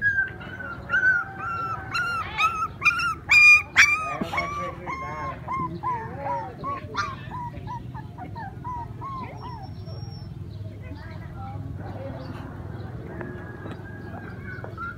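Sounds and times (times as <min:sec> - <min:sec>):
puppy whimpering and yelping: 0:00.0 - 0:10.4.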